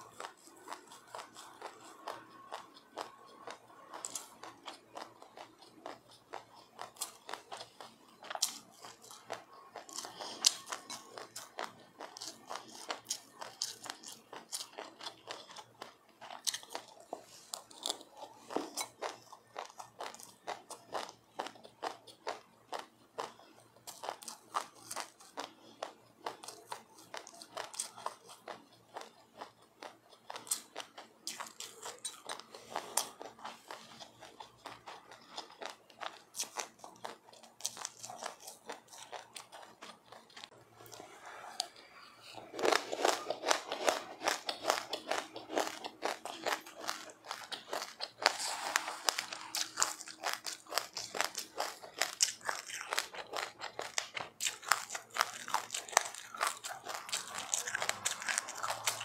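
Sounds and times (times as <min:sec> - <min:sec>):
seeds being chewed crunchily: 0:00.0 - 0:59.0.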